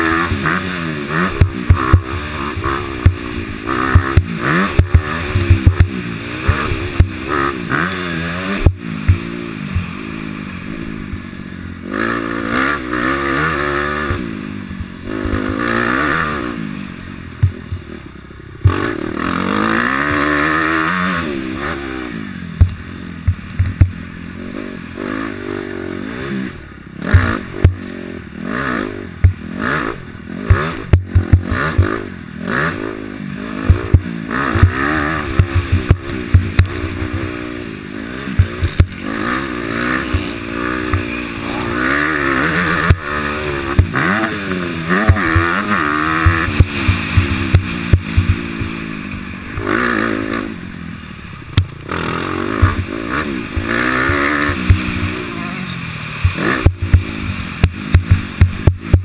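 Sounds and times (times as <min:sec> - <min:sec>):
dirt bike engine revving: 0:00.0 - 0:59.0
sharp knocks and clatter: 0:03.9 - 0:07.2, 0:22.6 - 0:24.0, 0:30.5 - 0:32.0, 0:33.7 - 0:37.3, 0:38.3 - 0:39.1, 0:45.0 - 0:49.8, 0:56.2 - 0:59.0.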